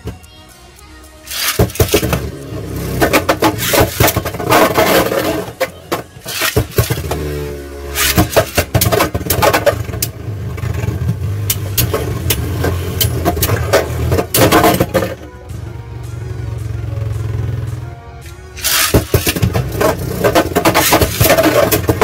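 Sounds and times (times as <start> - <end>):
spinning tops clacking: 1.3 - 7.0, 7.9 - 10.1, 18.6 - 22.0
spinning tops whirring: 7.9 - 10.1, 18.6 - 22.0.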